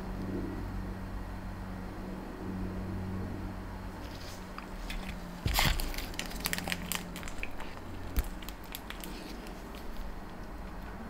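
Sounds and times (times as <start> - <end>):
plastic bag crinkling: 4.1 - 10.8.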